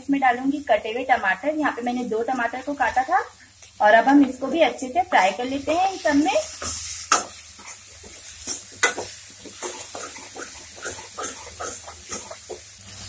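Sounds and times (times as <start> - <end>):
vegetables sizzling: 0.0 - 13.0
spoon scraping metal pan: 6.5 - 12.6.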